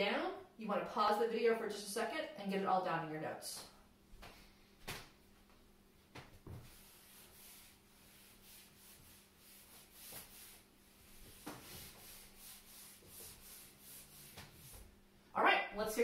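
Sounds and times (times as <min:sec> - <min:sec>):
eraser rubbing on whiteboard: 0:06.6 - 0:14.9.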